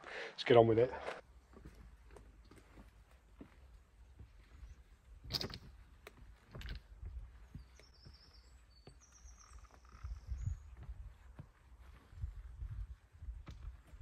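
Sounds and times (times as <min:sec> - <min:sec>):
footsteps on stones: 0:01.0 - 0:14.0
small bird chirping: 0:07.3 - 0:11.2.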